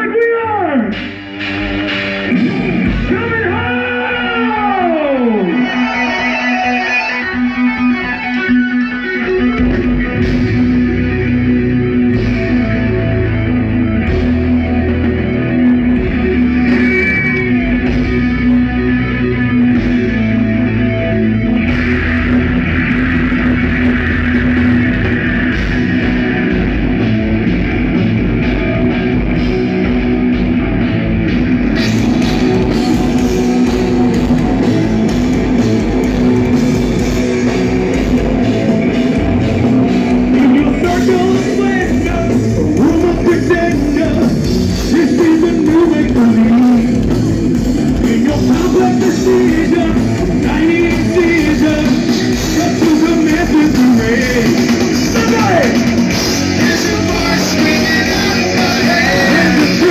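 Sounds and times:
bass guitar: 0:00.0 - 0:59.9
distorted guitars: 0:00.0 - 0:59.9
drums: 0:00.0 - 0:59.9
person singing: 0:47.9 - 0:59.9.

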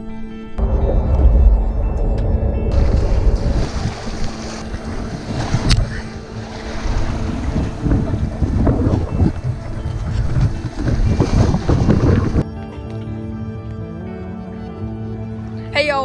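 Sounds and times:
wind buffeting microphone: 0:00.6 - 0:12.5
surf washing against rocks: 0:02.8 - 0:12.4.

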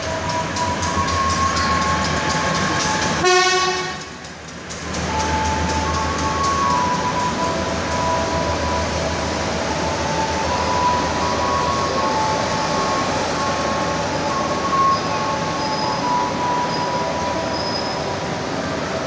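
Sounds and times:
train rumbling: 0:00.0 - 0:19.0
wheel squeal: 0:09.7 - 0:18.3.

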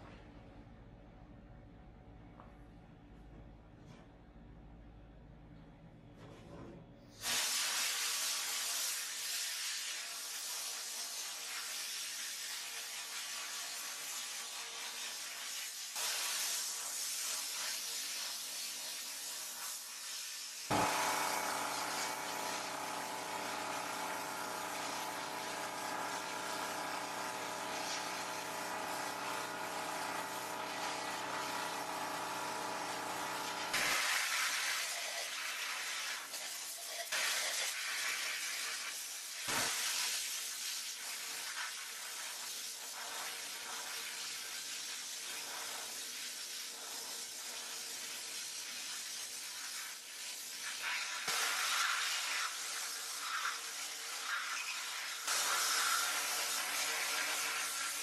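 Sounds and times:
sandblast gun hissing: 0:07.2 - 0:32.1, 0:49.2 - 0:58.0.

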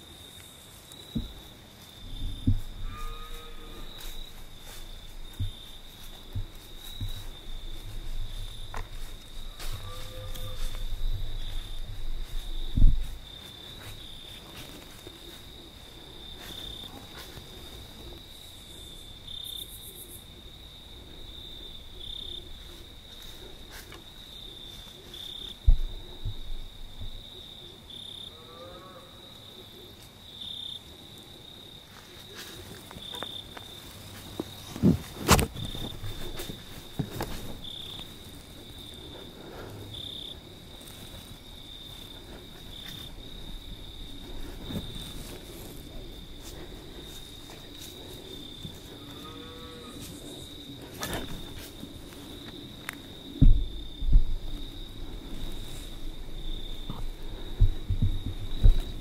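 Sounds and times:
crickets chirping: 0:00.0 - 0:59.0
low thumps: 0:02.1 - 0:03.0, 0:10.6 - 0:13.3, 0:53.4 - 0:54.7, 0:56.2 - 0:59.0.

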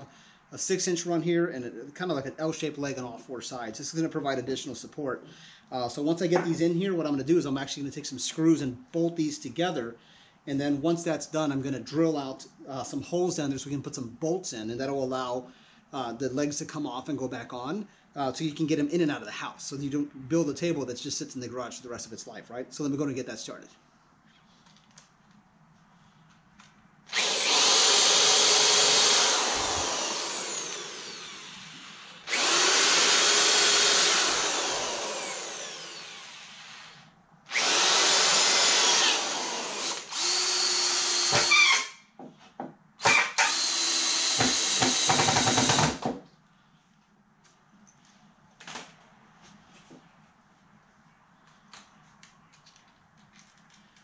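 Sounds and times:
power drill motor whining: 0:27.1 - 0:42.0, 0:43.0 - 0:46.0.

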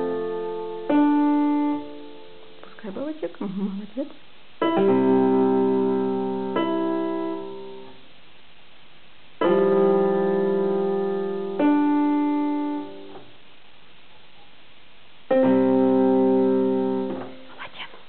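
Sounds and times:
piano chords on electronic keyboard: 0:00.0 - 0:02.7, 0:04.6 - 0:08.0, 0:09.4 - 0:13.4, 0:15.3 - 0:17.5.

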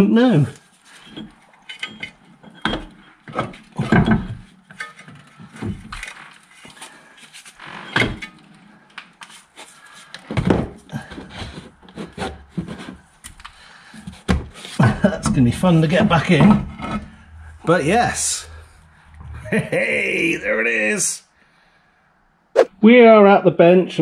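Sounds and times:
metal parts knocking and scraping: 0:01.0 - 0:06.6.

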